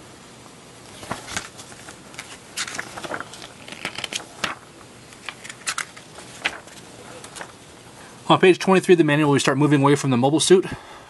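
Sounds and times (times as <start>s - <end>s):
paper pages flipping: 0.8s - 7.7s.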